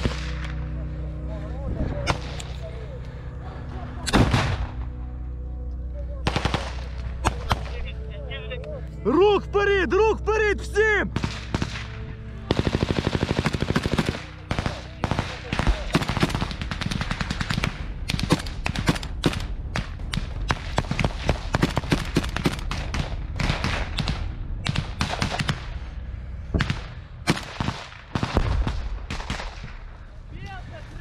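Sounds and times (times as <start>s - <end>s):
rapid gunshots: 6.3s - 7.7s, 11.1s - 25.8s, 26.6s - 29.8s.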